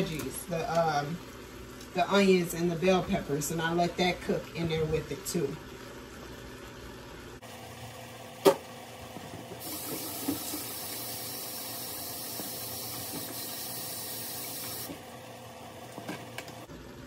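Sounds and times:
faucet running into sink: 9.5s - 15.1s.

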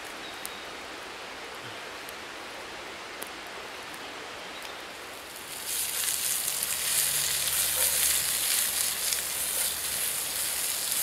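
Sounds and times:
mushroom and onion sizzling in a pan: 4.6s - 11.0s.

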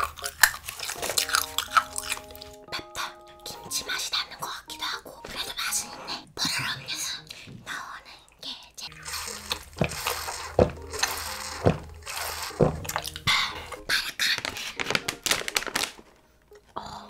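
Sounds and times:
foil bag crinkling and tearing: 0.0s - 2.6s, 9.0s - 16.2s
person gulping: 8.9s - 13.8s.

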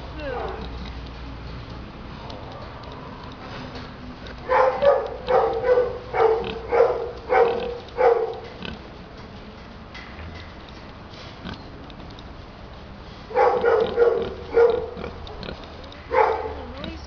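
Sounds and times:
pig grunting: 5.4s - 8.9s, 13.4s - 15.6s.

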